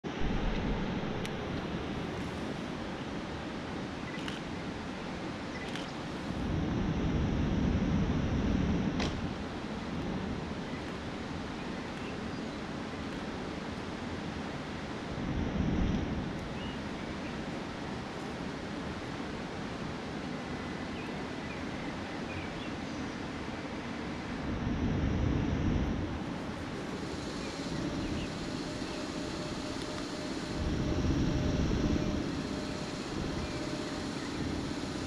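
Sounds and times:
wind buffeting microphone: 22.6 - 35.0.

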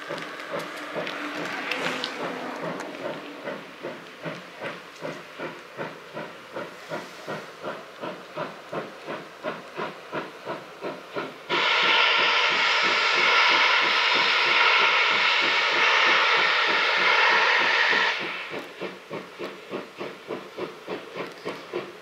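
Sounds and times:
steam locomotive chuffing: 0.0 - 22.0
loud steam blast: 11.1 - 20.4.

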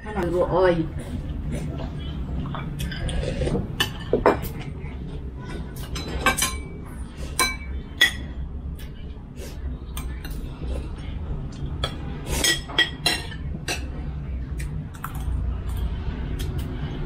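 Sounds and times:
cutlery clinking on ceramic plates: 5.8 - 6.7, 11.8 - 13.9.

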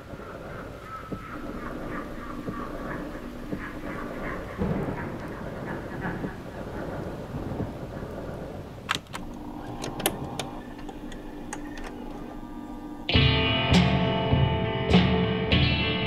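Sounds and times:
faint steady hum: 0.0 - 14.7
low rumbling ambience: 0.0 - 15.5
scattered clicks: 0.5 - 13.0
rock music with guitar: 13.1 - 16.0.

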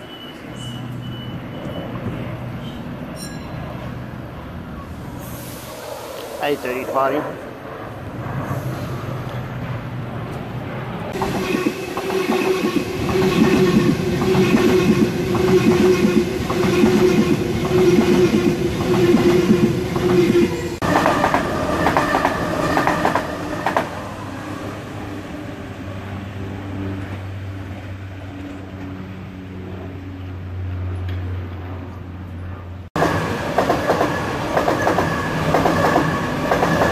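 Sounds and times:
approaching train rumble: 0.0 - 36.9
train drive hum and whine: 0.0 - 36.9.

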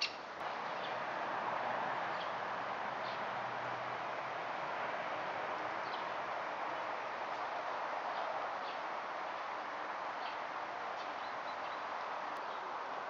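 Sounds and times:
faint bird chirps: 0.0 - 0.2
outdoor background hiss: 0.0 - 13.0.

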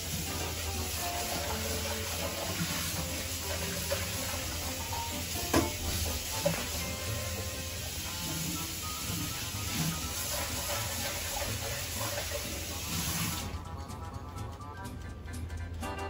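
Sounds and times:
fat sizzling: 0.0 - 13.6
rotisserie oven humming: 0.0 - 16.0.

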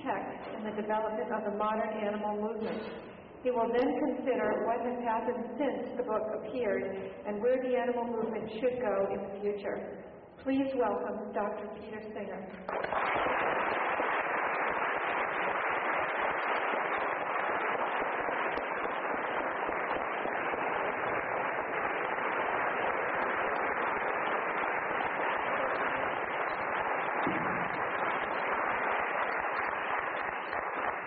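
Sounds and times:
audience applauding: 12.6 - 31.0.

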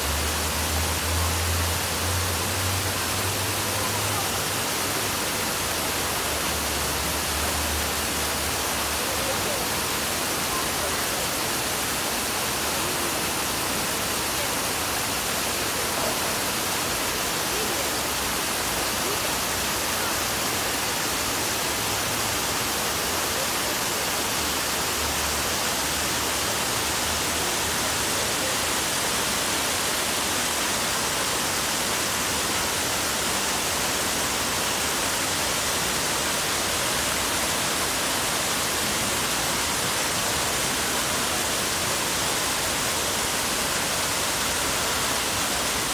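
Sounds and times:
fountain water splashing: 0.0 - 45.9.

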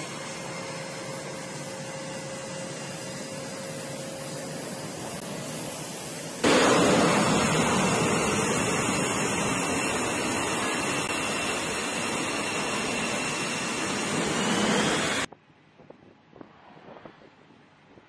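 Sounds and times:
jet engines running: 0.0 - 15.3.

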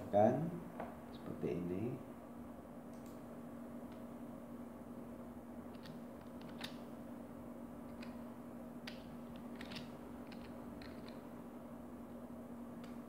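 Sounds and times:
steady low hum: 0.0 - 13.0
mouse and keyboard clicking: 5.7 - 6.8, 8.8 - 11.2.

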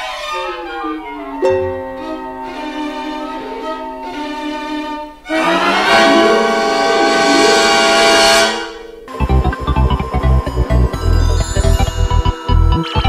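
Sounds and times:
music with long held notes: 0.0 - 13.0.

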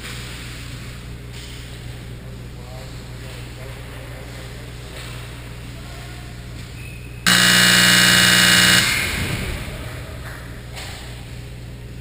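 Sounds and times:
scoreboard horn echoing: 7.3 - 9.0.

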